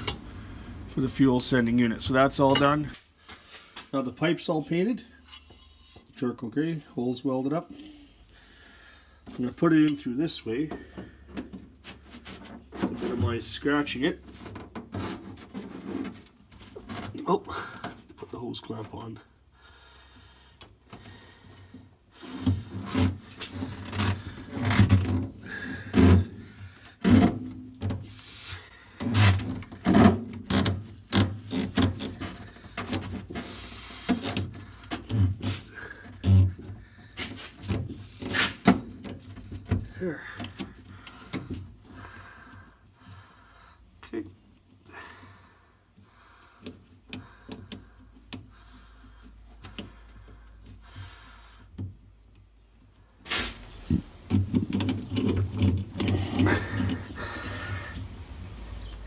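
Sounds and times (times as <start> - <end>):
rubber hose rubbing and scraping: 0.9 - 19.2, 20.8 - 59.0
metal pipe clicks and taps: 9.8 - 10.0.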